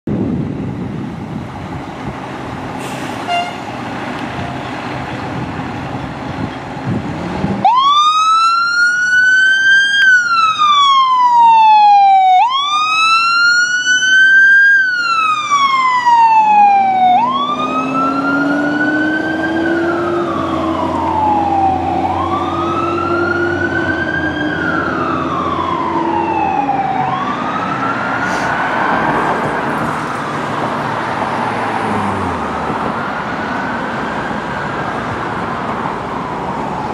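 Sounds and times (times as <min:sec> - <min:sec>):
fire truck engine rumbling: 0:00.1 - 0:36.9
low siren tone: 0:07.6 - 0:28.2
siren wailing: 0:07.6 - 0:30.7.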